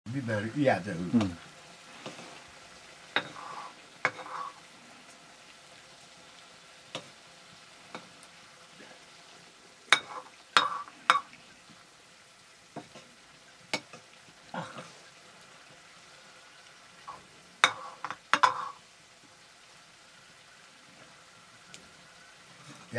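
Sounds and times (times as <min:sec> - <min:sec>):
curry sizzling in a wok: 0:00.1 - 0:22.9
metal ladle scraping and knocking: 0:03.2 - 0:04.6, 0:17.6 - 0:18.8.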